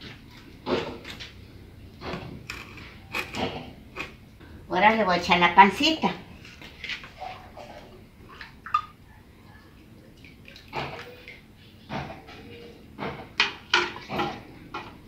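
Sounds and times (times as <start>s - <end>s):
metal ladle scraping clay pot: 2.1s - 4.2s.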